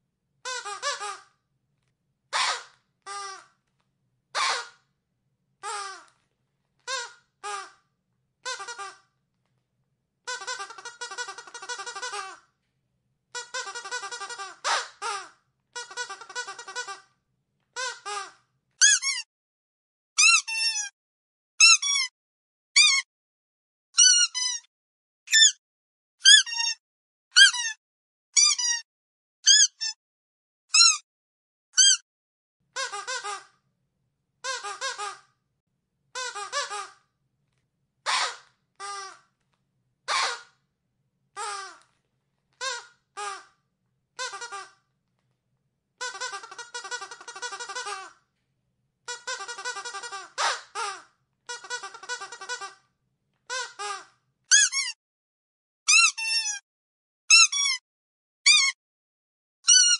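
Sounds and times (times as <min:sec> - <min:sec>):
dog squeaky toy squeaking: 0:02.4 - 0:03.4, 0:08.4 - 0:09.0, 0:10.3 - 0:12.4, 0:13.4 - 0:17.0, 0:17.8 - 0:19.3, 0:20.2 - 0:20.9, 0:21.6 - 0:22.1, 0:22.8 - 0:23.1, 0:24.0 - 0:24.7, 0:25.3 - 0:25.6, 0:26.2 - 0:26.8, 0:27.4 - 0:27.8, 0:28.4 - 0:28.8, 0:29.5 - 0:30.0, 0:30.7 - 0:31.0, 0:31.8 - 0:32.0, 0:40.1 - 0:40.5, 0:44.2 - 0:44.7, 0:46.0 - 0:48.1, 0:49.1 - 0:52.7, 0:53.5 - 0:55.0, 0:55.9 - 0:56.6, 0:57.3 - 0:57.8, 0:58.5 - 0:58.8, 0:59.7 - 0:59.9.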